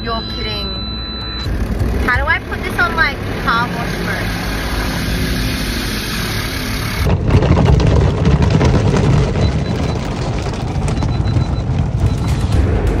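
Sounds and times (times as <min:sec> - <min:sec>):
low hum inside car: 0:00.0 - 0:07.2.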